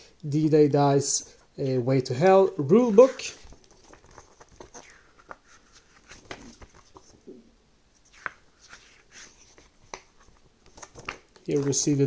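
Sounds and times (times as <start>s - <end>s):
paper pages rustling: 2.8s - 7.2s, 8.0s - 12.0s.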